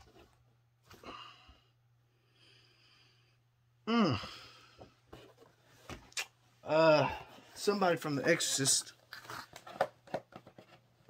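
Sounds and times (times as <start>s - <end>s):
man breathing: 0.9s - 5.1s
man sighing: 3.8s - 4.9s, 6.6s - 7.6s.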